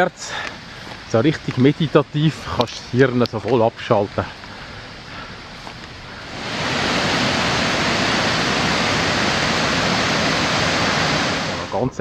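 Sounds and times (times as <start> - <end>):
river rushing over rocks: 6.2 - 11.8.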